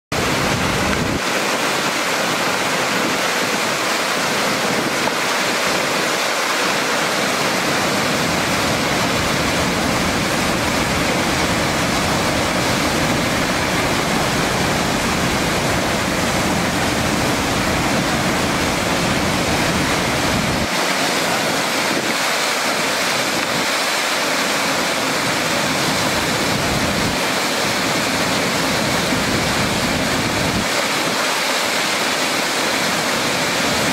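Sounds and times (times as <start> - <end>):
water crashing into rapids: 0.1 - 33.9.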